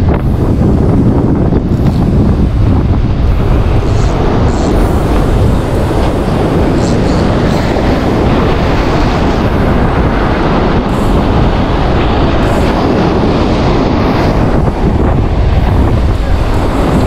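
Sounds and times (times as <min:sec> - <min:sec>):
surf breaking on rocks: 0:00.0 - 0:17.0
wind blowing on microphone: 0:00.0 - 0:17.0.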